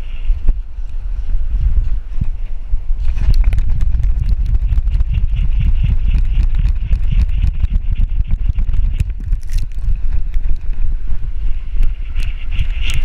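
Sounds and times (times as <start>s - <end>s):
wind noise on microphone: 0.0s - 13.0s
dog galloping thuds: 3.3s - 10.2s.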